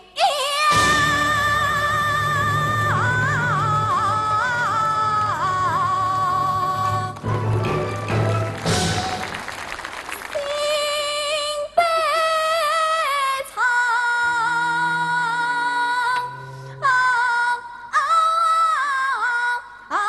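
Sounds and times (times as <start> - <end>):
woman singing opera: 0.0 - 7.5, 10.4 - 20.0
applause: 6.2 - 11.2
instrumental accompaniment: 6.6 - 9.6
singer breathing: 16.3 - 16.9.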